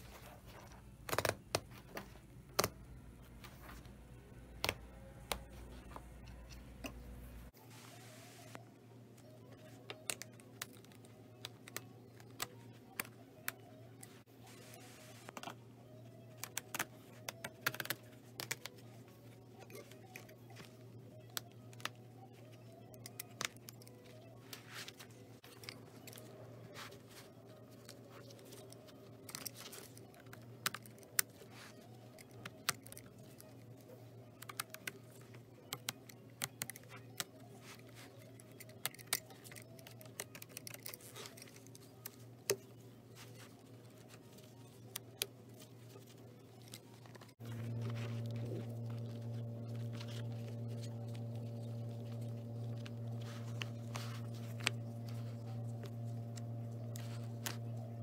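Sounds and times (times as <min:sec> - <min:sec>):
steady low hum: 0:18.1 - 0:58.0.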